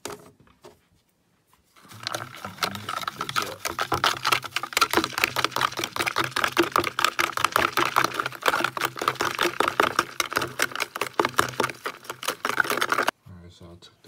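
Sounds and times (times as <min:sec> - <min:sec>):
toothbrush knocking against plastic bowl: 0:02.0 - 0:13.1.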